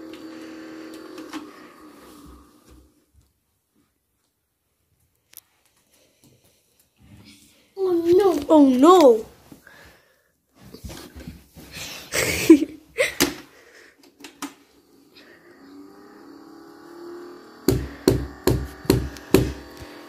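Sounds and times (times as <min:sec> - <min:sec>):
toy vacuum motor buzzing: 0:00.0 - 0:03.0, 0:14.6 - 0:20.0
sharp knocks: 0:17.7 - 0:19.7.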